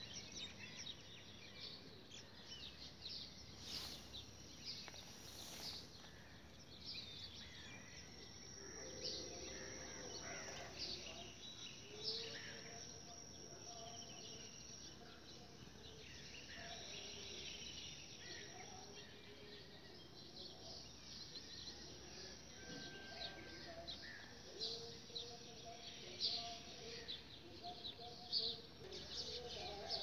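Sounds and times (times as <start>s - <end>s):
small birds chirping: 0.0s - 22.1s.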